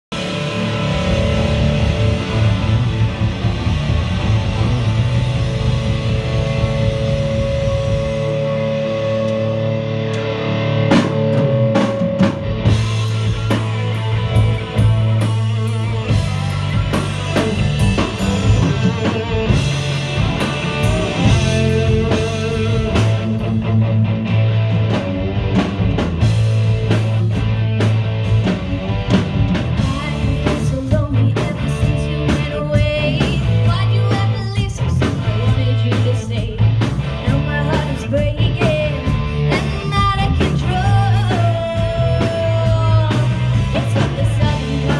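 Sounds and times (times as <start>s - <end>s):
drum kit: 0.1s - 44.9s
electric guitars: 0.1s - 44.9s
woman singing: 29.8s - 36.6s, 37.2s - 44.9s.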